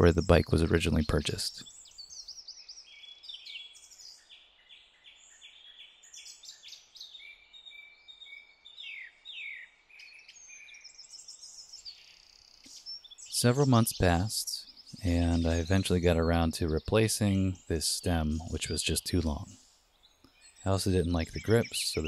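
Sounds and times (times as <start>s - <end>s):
songbirds singing: 0.0s - 22.0s
faint steady hiss: 12.6s - 22.0s.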